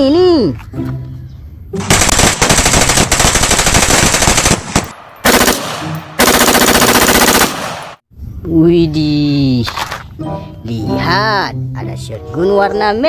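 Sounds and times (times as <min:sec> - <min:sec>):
automatic rifle fire: 0:01.8 - 0:08.0.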